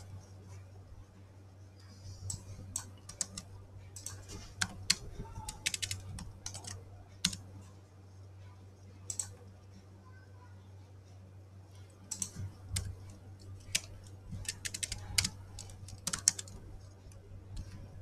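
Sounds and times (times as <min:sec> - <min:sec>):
low steady hum: 0:00.0 - 0:18.0
keyboard keys clicking: 0:02.2 - 0:07.5, 0:09.1 - 0:09.4, 0:12.0 - 0:17.9.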